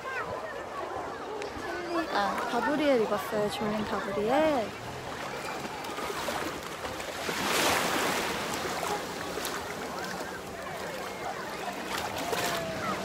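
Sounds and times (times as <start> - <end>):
water sloshing around legs: 0.4 - 13.0
surf washing onto beach: 1.4 - 13.0.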